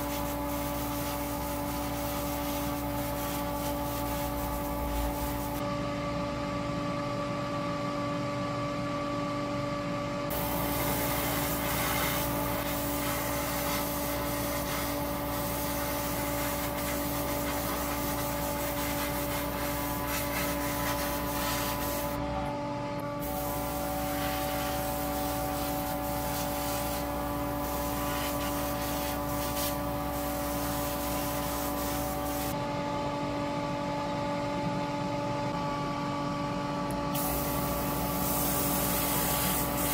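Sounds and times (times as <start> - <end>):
rubbing and sanding: 0.0 - 5.6, 10.3 - 22.2, 23.8 - 32.6
constant hum: 0.0 - 39.9.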